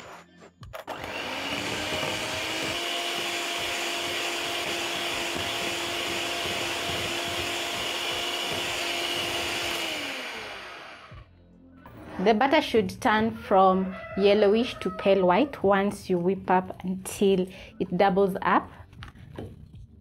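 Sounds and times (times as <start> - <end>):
electric hand mixer running: 0.9 - 11.3.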